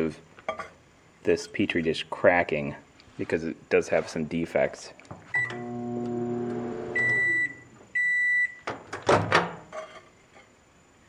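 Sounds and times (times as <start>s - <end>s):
microwave humming: 5.3s - 8.1s
microwave end beeps: 5.3s - 8.7s
microwave keypad beep: 7.0s - 8.6s.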